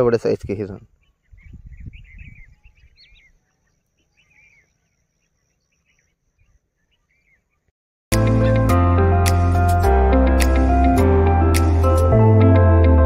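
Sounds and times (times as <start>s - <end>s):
small birds chirping: 0.0s - 7.7s.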